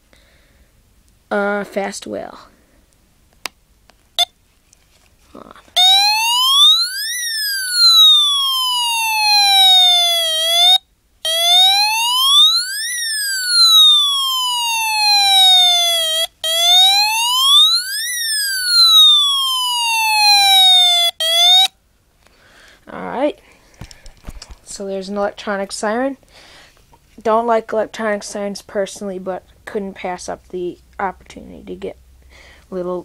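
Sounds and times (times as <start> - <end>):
electronic siren wailing: 5.7 - 21.7.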